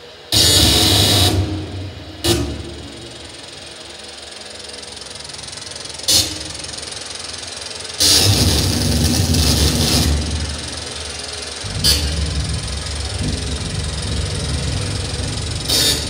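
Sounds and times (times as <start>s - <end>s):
harsh noise blasts: 8.1s - 16.0s
low rumble: 9.2s - 16.0s.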